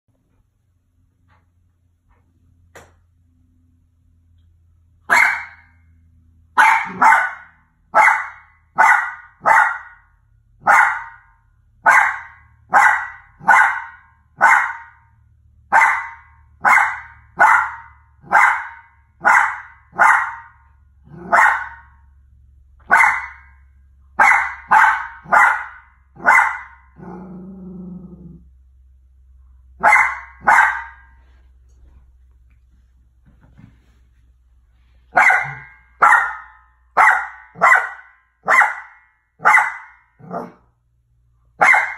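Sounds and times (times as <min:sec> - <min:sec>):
dog barking sharply: 0:05.1 - 0:05.7, 0:06.6 - 0:10.0, 0:11.9 - 0:15.0, 0:15.7 - 0:20.5, 0:22.9 - 0:23.5, 0:24.2 - 0:26.8, 0:29.8 - 0:31.1, 0:35.1 - 0:40.6, 0:41.6 - 0:41.9
dog growling low: 0:21.0 - 0:21.4, 0:26.9 - 0:28.5.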